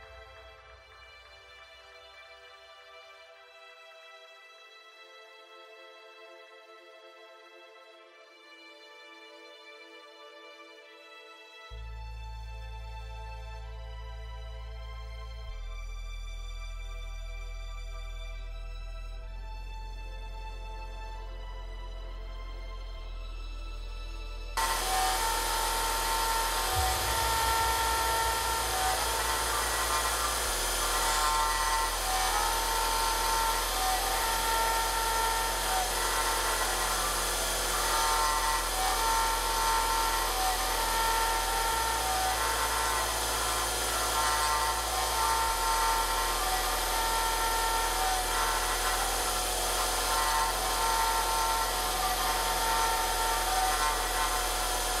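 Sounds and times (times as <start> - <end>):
end mill cutting whine: 24.6 - 55.0
machine spindle running: 24.6 - 55.0.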